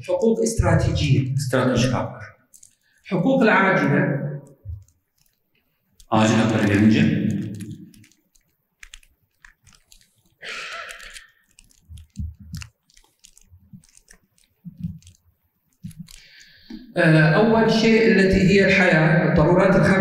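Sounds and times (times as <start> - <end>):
man speaking: 0.0 - 2.4, 3.0 - 4.3, 6.1 - 7.7
breath hisses: 10.4 - 11.5, 16.2 - 16.9
microphone handling clicks: 11.7 - 14.0.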